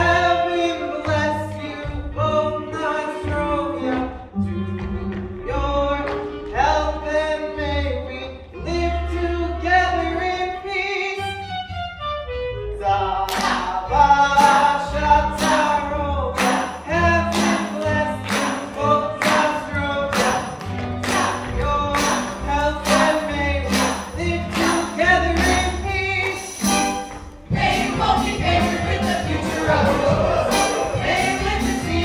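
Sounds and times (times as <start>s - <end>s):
instrumental accompaniment: 0.0s - 32.0s
steady beat of sharp strikes: 26.6s - 32.0s
ensemble singing stage song: 27.5s - 32.0s.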